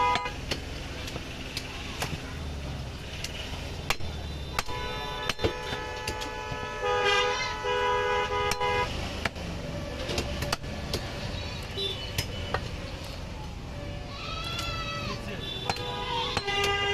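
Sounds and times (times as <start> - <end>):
vehicle horns honking: 0.0 - 0.4, 4.1 - 8.9, 11.7 - 12.6, 15.2 - 16.9
cleaver chopping on wooden block: 3.8 - 6.4, 15.6 - 16.8.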